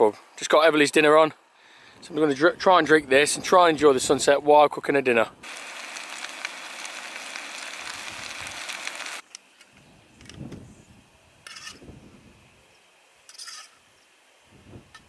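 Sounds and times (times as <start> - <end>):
gas stove burner hissing: 5.4 - 9.4.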